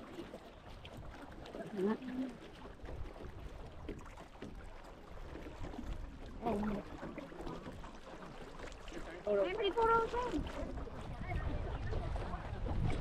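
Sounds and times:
water and oar noise: 0.0 - 13.0
wind rumble on microphone: 9.9 - 13.0.

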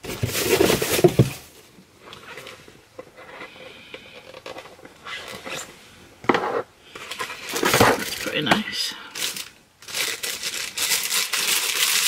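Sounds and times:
packaging rustling: 7.0 - 8.5, 9.1 - 12.0.

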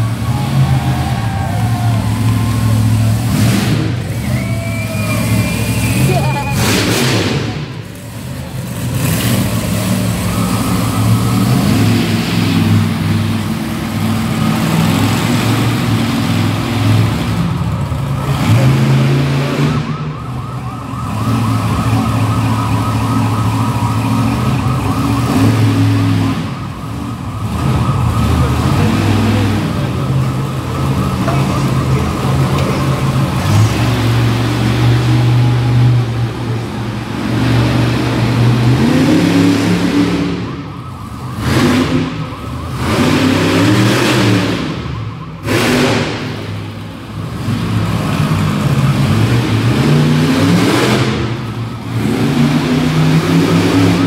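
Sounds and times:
truck engine revving: 0.0 - 54.0
warbling siren: 19.4 - 33.4.

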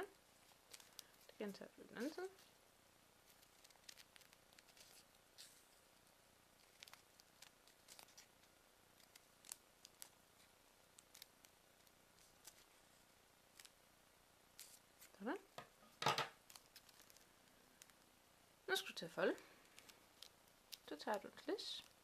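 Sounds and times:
paper handling: 0.4 - 1.4, 3.3 - 5.8, 6.6 - 13.8, 16.4 - 17.2.

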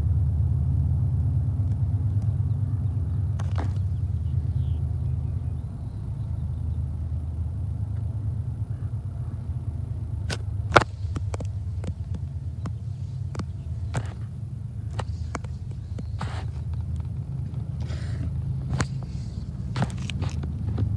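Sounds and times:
distant diesel engines rumbling: 0.0 - 20.9
sharp clicks: 10.3 - 14.3.

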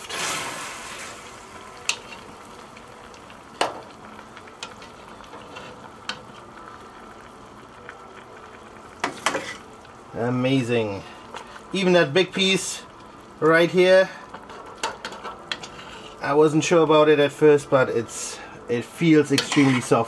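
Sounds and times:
liquid simmering and bubbling: 0.0 - 20.0
metal tongs clinking on pot: 19.3 - 19.9.

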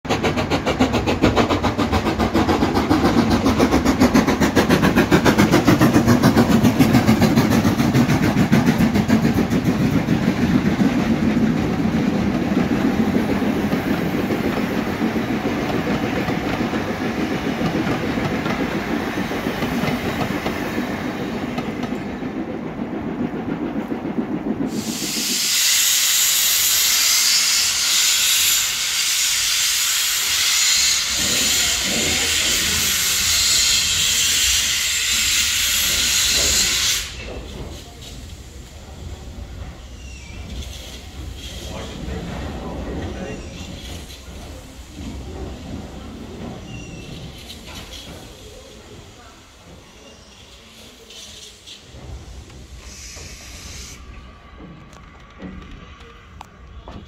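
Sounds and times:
train wheels rumbling and clattering: 0.0 - 57.0
steam venting hiss: 23.8 - 54.7.

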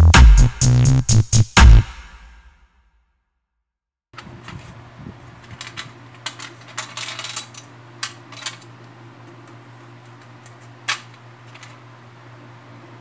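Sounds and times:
sheet metal parts clinking: 5.4 - 8.8.

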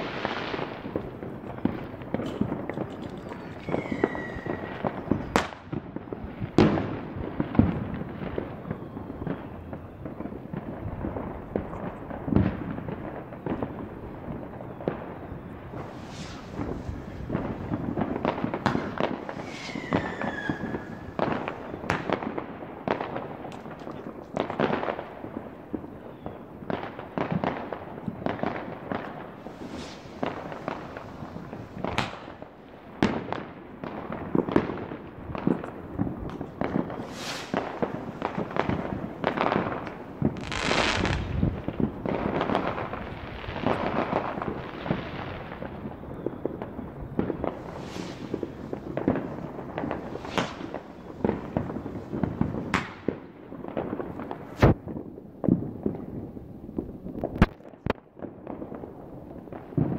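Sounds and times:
falling firework whistle: 0.0 - 12.0, 12.6 - 22.4, 28.2 - 33.3, 35.6 - 53.3
fireworks bangs and crackling: 0.0 - 59.9.

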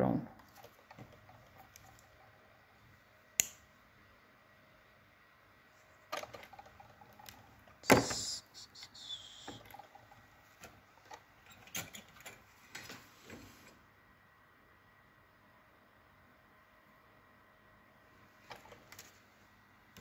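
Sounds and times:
light clicks and rustles of wires: 18.4 - 19.3.

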